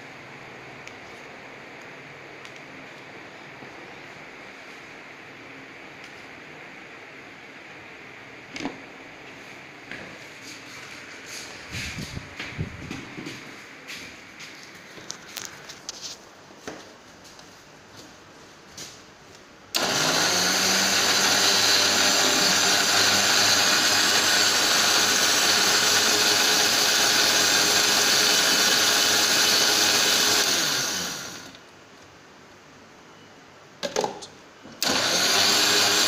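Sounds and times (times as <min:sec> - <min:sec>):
mixer grinder motor humming: 0:19.7 - 0:31.6, 0:34.8 - 0:36.0.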